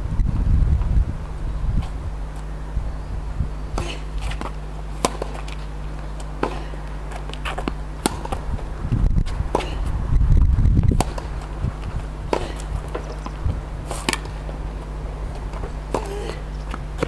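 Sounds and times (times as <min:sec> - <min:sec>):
wind rumble on microphone: 0:00.0 - 0:04.5, 0:07.9 - 0:17.0
tennis ball struck with rackets: 0:03.7 - 0:08.5, 0:09.5 - 0:09.9, 0:10.9 - 0:17.0.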